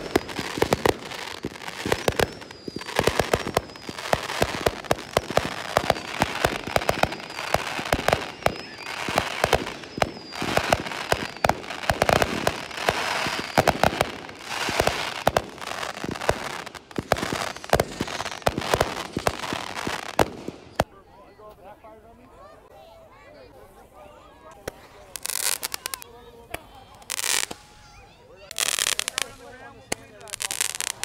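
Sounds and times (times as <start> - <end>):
fireworks bangs: 0.0 - 20.9
fireworks crackling: 0.0 - 20.9, 24.6 - 31.0.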